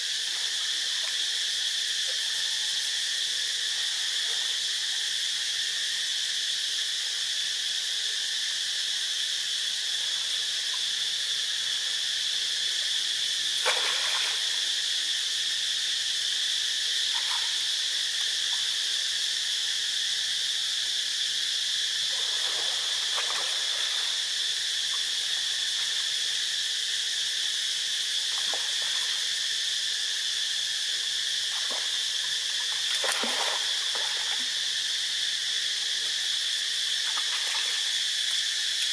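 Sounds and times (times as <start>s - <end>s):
high-pitched insect drone: 0.0s - 38.9s
water splashes: 13.6s - 14.6s, 22.1s - 24.2s, 32.6s - 34.6s.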